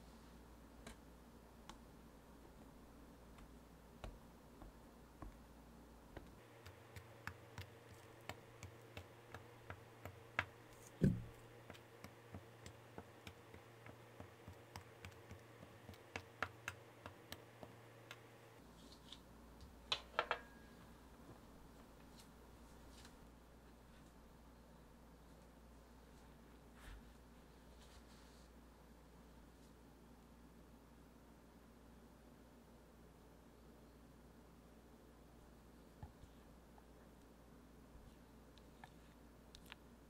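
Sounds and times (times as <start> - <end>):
knock: 11.0 - 11.3.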